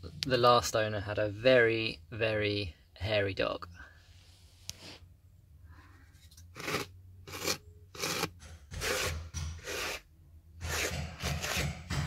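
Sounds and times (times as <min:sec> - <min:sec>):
hand brush scratching carpet: 0:06.6 - 0:10.0.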